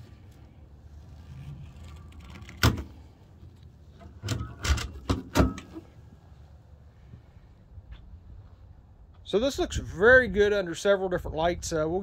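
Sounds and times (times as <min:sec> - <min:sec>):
metal trunk lid thud: 0:04.1 - 0:05.8.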